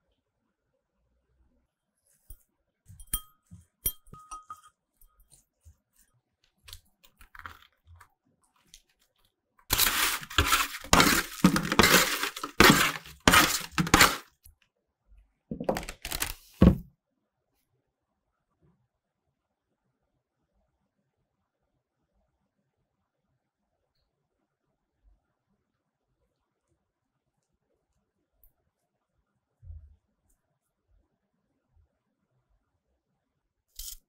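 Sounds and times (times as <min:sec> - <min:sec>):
glass bowl clinking: 0:03.0 - 0:05.3
scraping and rustling on parchment: 0:09.7 - 0:14.3.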